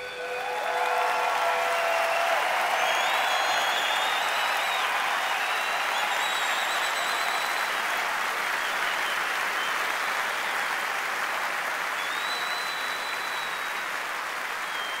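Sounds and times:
high steady whistle: 0.0s - 7.8s, 12.0s - 13.8s, 14.6s - 15.0s
concert audience applauding: 0.0s - 15.0s.

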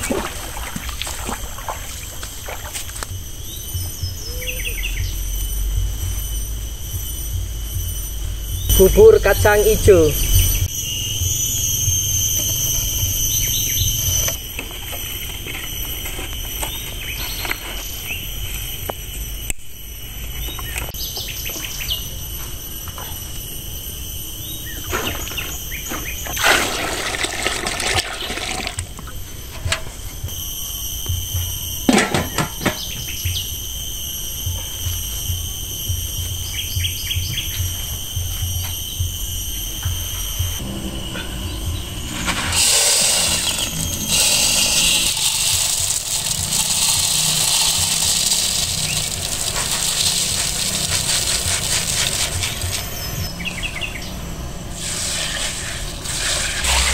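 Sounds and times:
insects droning: 0.0s - 56.9s
water pouring between metal pots: 26.4s - 28.9s, 42.5s - 52.8s
pots and wood clattering: 42.2s - 52.8s.

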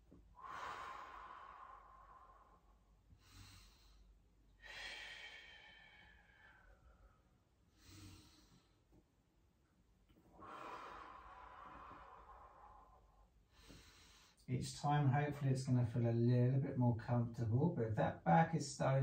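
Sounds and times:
man breathing: 0.3s - 9.0s, 10.3s - 14.5s.

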